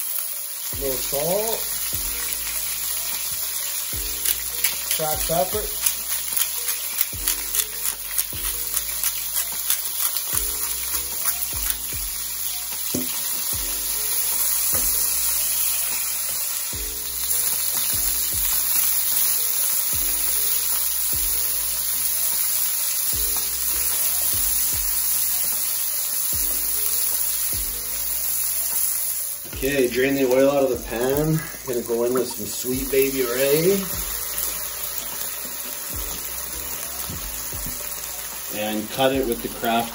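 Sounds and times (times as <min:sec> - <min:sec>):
chicken sizzling in a frying pan: 0:00.0 - 0:39.9
spatula stirring in a pan: 0:02.2 - 0:20.0.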